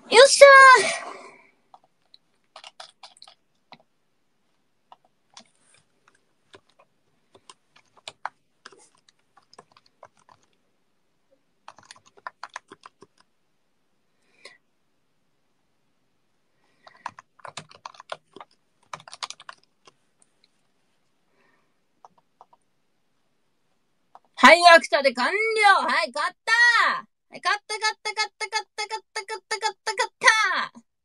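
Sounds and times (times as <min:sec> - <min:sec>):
keyboard typing: 0:01.7 - 0:04.0, 0:04.8 - 0:10.6, 0:11.6 - 0:13.3, 0:16.8 - 0:20.5, 0:22.0 - 0:22.7, 0:24.1 - 0:24.4.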